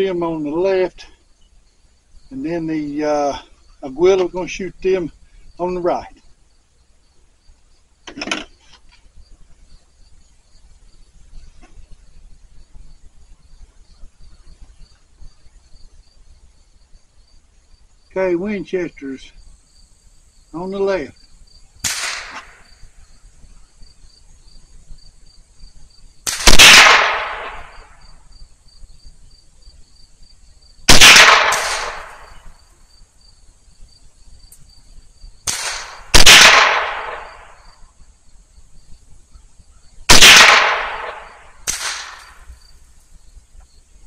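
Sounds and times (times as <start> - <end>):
insects chirring: 0.0 - 44.0
rifle shots with echo: 21.8 - 22.6, 26.3 - 28.0, 30.9 - 32.5, 35.5 - 37.7, 40.1 - 42.4.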